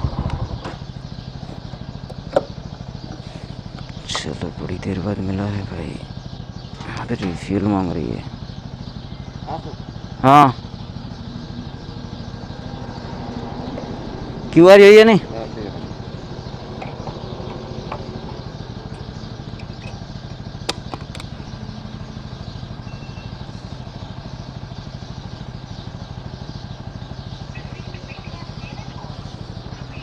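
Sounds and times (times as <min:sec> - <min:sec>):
motorcycle engine idling: 0:00.0 - 0:30.0
sharp click: 0:20.6 - 0:21.3.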